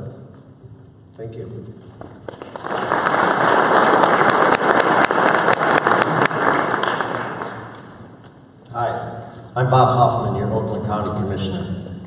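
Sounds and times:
audience applauding: 0:02.0 - 0:08.4.

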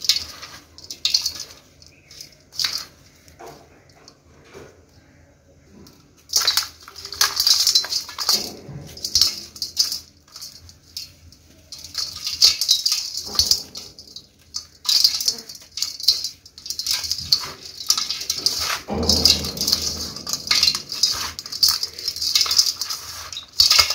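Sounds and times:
dirt crumbling into metal bowl: 0:11.8 - 0:23.9.

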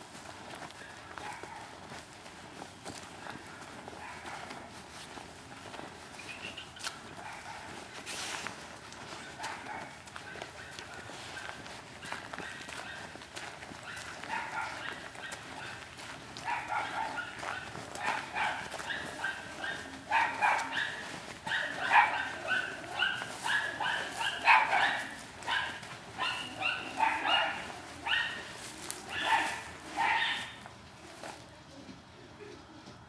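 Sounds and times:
dog barking: 0:01.2 - 0:01.9, 0:03.2 - 0:04.7, 0:07.0 - 0:08.0, 0:09.2 - 0:13.2, 0:13.8 - 0:30.7.

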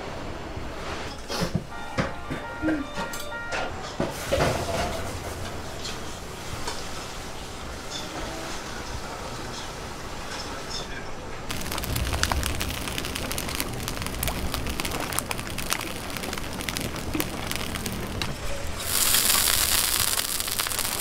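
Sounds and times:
oil crackling on hot griddle: 0:11.5 - 0:21.0.

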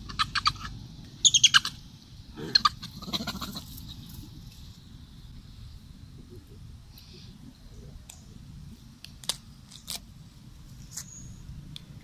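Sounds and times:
monkey high-pitched squeaks: 0:00.0 - 0:01.8
faint steady high hiss: 0:00.7 - 0:12.0.

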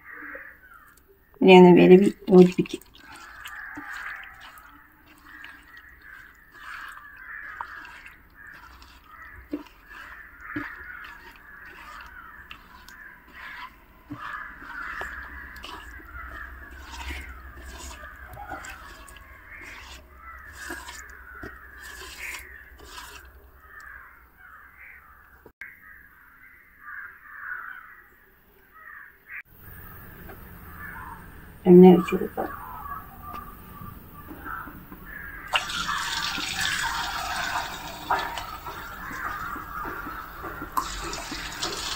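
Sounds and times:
bird calls: 0:00.0 - 0:41.9
hands squelching in batter: 0:01.9 - 0:24.2, 0:29.6 - 0:41.9.

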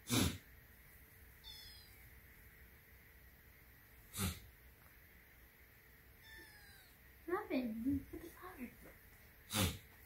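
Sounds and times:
kitten mewing: 0:01.4 - 0:02.0, 0:06.2 - 0:07.0, 0:09.5 - 0:09.9.

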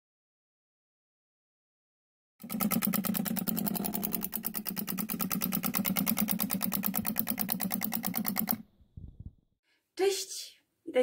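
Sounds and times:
small machine humming and clattering: 0:02.4 - 0:08.7.

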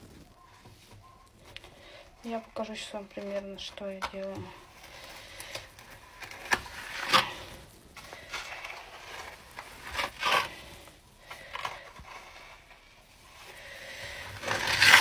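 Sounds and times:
trowel scraping wet plaster: 0:08.4 - 0:10.7, 0:14.3 - 0:15.0.

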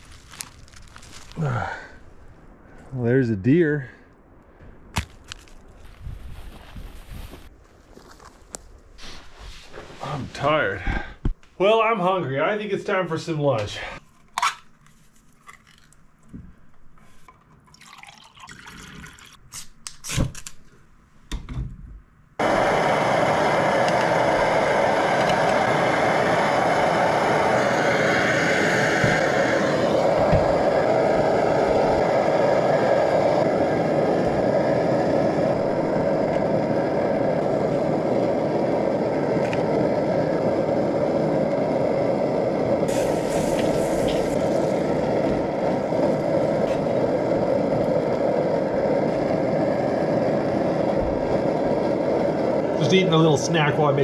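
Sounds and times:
stove burner rushing: 0:22.4 - 0:54.0.

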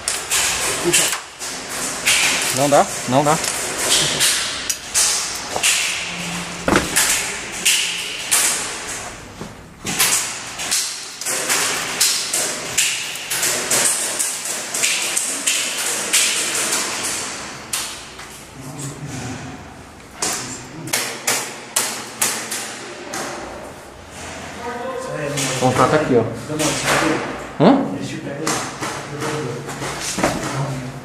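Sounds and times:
footsteps on rubble-strewn concrete: 0:06.7 - 0:07.1.

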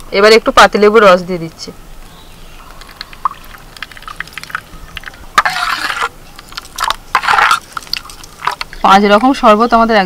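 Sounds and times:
juice trickling into steel bowl: 0:02.7 - 0:09.3.

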